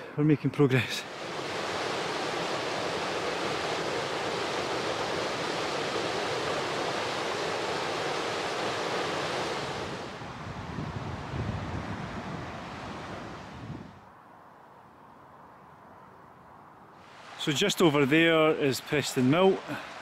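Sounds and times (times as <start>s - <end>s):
river water rushing: 0.8s - 13.8s, 17.0s - 20.0s.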